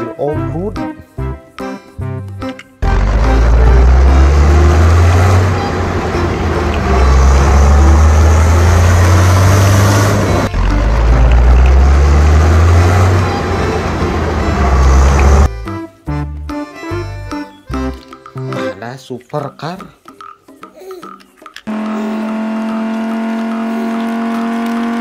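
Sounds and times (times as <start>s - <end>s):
vehicle engine running: 2.8s - 15.5s, 21.7s - 25.0s.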